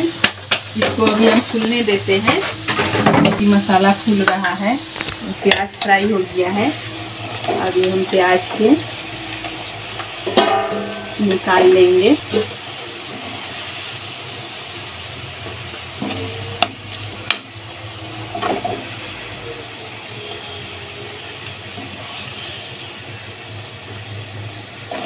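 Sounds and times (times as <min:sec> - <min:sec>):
onions sizzling in hot oil: 0:00.0 - 0:25.0
metal spatula scraping pan: 0:00.8 - 0:06.2, 0:16.0 - 0:17.4.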